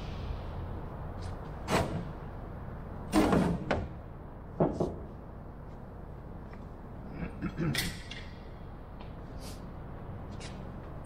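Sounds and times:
wooden knocks and clunks: 0:04.5 - 0:05.2.

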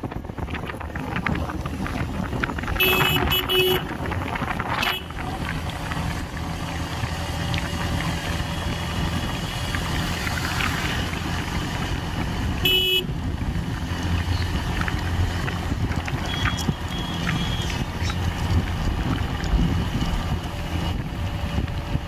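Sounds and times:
motorcycle engine and wind rumble: 0:00.0 - 0:22.0
vehicle horn toot: 0:02.8 - 0:03.9, 0:04.8 - 0:05.1, 0:12.6 - 0:13.1.

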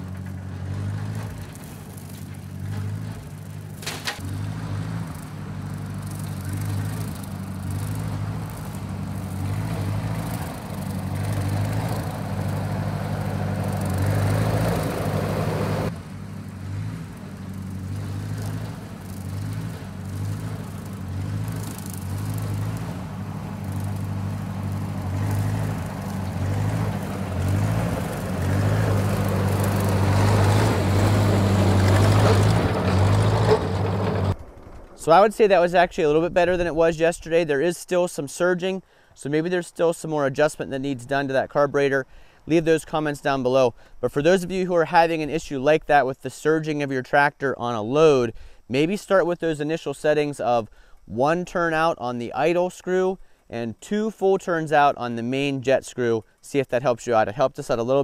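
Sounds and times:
tractor engine running under load: 0:00.0 - 0:36.6.

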